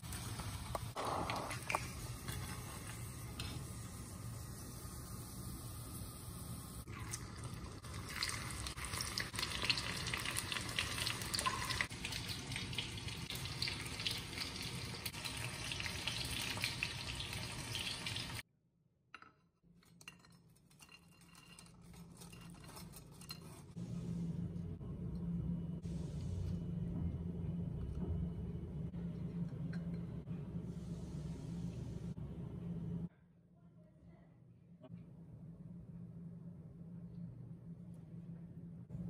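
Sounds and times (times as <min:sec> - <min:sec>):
oil sizzling and crackling: 0:00.0 - 0:18.5
low hum: 0:21.3 - 0:39.0.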